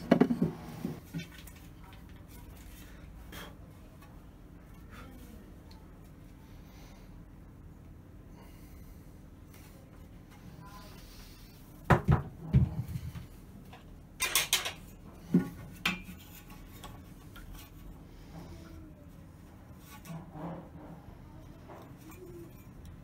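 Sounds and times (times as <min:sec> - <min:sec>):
wooden board and tools clattering: 0:00.0 - 0:01.3.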